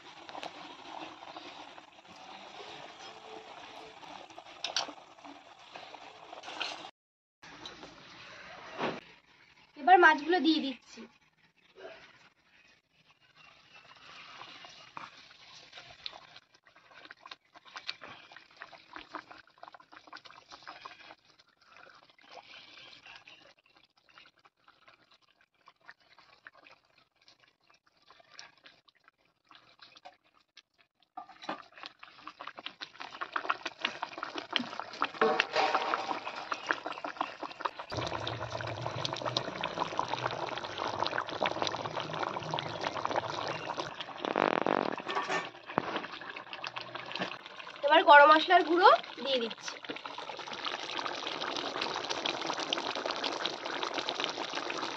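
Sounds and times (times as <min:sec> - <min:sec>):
curry boiling and bubbling: 0:00.0 - 0:54.9
small crackly pops: 0:43.2 - 0:47.5.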